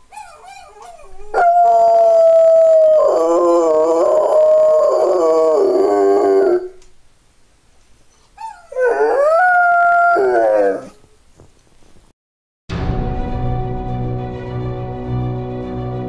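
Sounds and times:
dog whimpering: 0:00.0 - 0:04.6, 0:08.1 - 0:11.0
dog howling: 0:00.2 - 0:06.8, 0:08.4 - 0:11.0.

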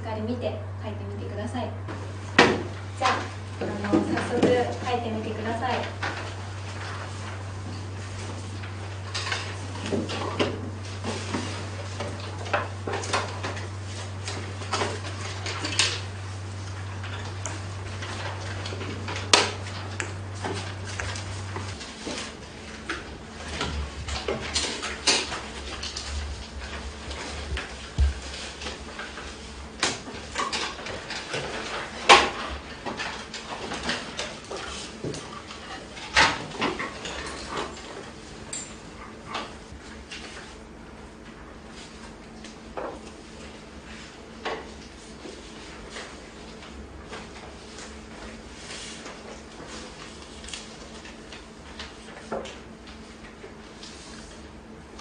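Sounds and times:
low electrical hum: 0:00.0 - 0:55.0
paper rustling and clicks: 0:08.2 - 0:37.9, 0:44.6 - 0:54.4.

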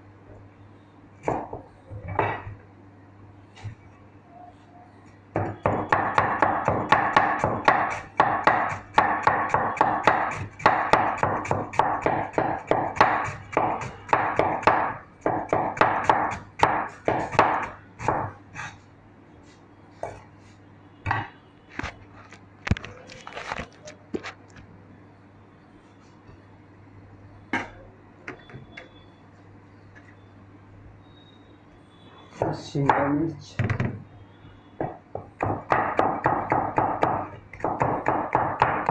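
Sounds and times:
cleaver chopping cabbage: 0:05.4 - 0:18.7, 0:35.4 - 0:38.9.

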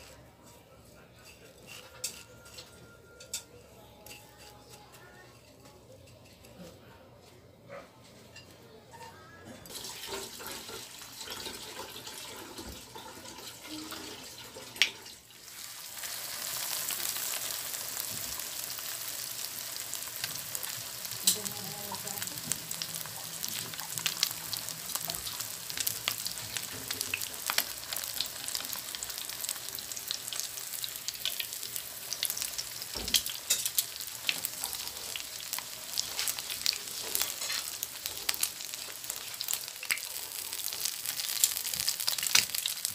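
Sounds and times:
fish frying in hot oil: 0:09.7 - 0:42.9.

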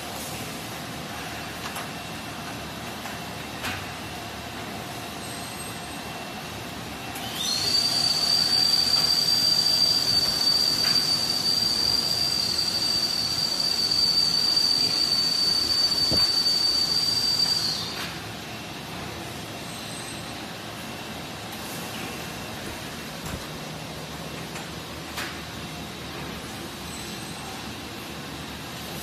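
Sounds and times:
machine high-pitched whine: 0:03.5 - 0:29.0.

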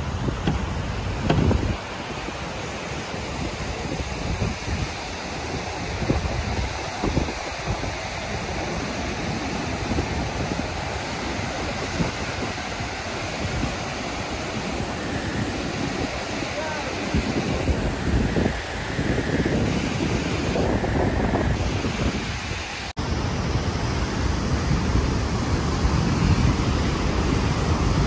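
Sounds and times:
river rushing over rapids: 0:00.0 - 0:28.0
wind buffeting microphone: 0:00.0 - 0:28.0.

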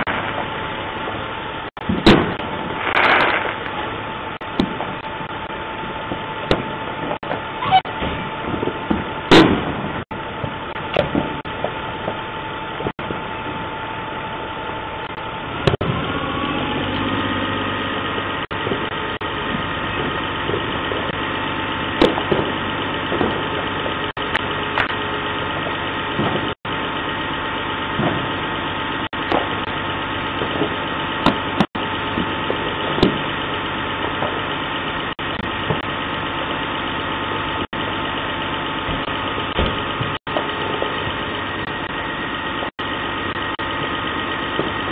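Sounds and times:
fire engines idling: 0:00.0 - 0:44.9.

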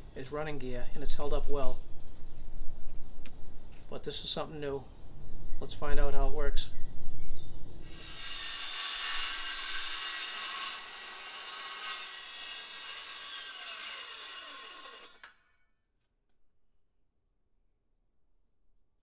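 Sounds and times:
circular saw cutting board: 0:07.9 - 0:15.6.

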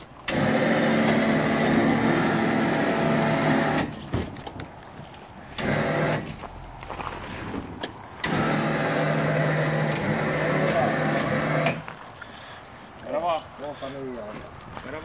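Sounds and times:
electric motor humming: 0:00.3 - 0:03.9, 0:05.6 - 0:06.2, 0:08.2 - 0:11.8.

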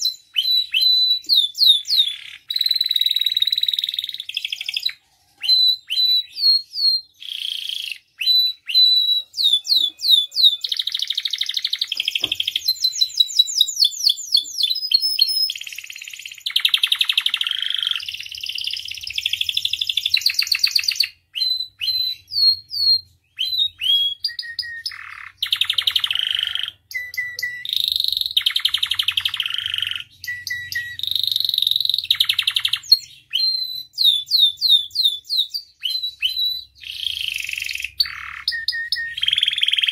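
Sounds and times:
canary singing trills: 0:00.0 - 0:39.9.

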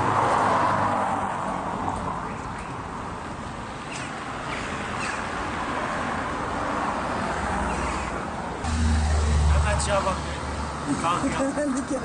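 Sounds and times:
street traffic: 0:00.0 - 0:12.0
car driving past: 0:08.6 - 0:10.8.

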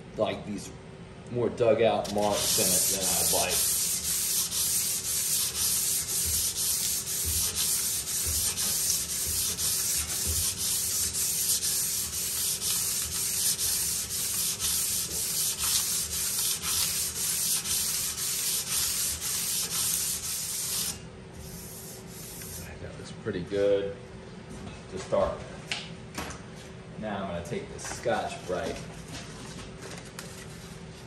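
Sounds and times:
sandpaper rubbing on metal: 0:02.1 - 0:22.7.

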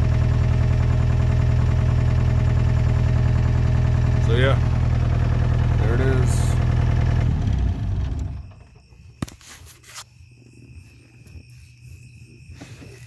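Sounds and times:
diesel engine idling: 0:00.0 - 0:09.0
crickets chirping: 0:04.3 - 0:13.0.

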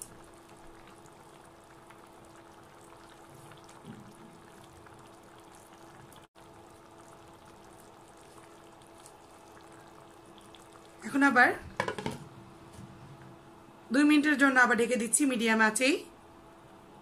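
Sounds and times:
curry simmering with bubbling hiss: 0:00.0 - 0:11.8
low steady hum: 0:00.0 - 0:17.0.

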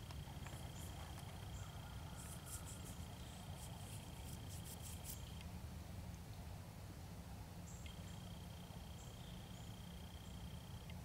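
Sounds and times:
soft crackles and rustles: 0:00.0 - 0:05.5.

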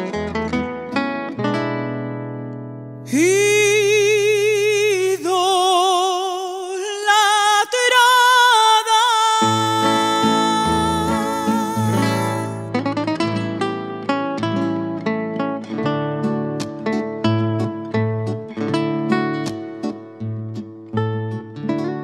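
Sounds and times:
acoustic guitars strumming: 0:00.0 - 0:22.0
woman singing with vibrato: 0:03.1 - 0:12.7.

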